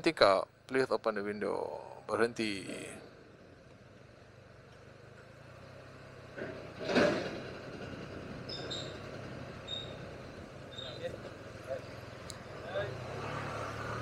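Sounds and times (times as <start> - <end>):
scooter engine humming: 3.2 - 14.0.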